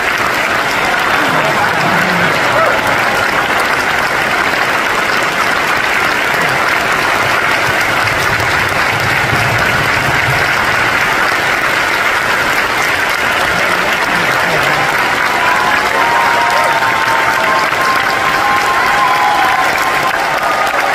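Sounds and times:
audience applauding: 0:00.0 - 0:20.9.

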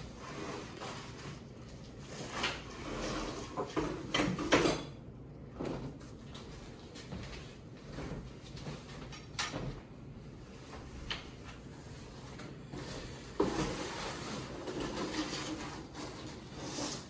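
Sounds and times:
scraping and rustling handling noise: 0:05.6 - 0:17.0.

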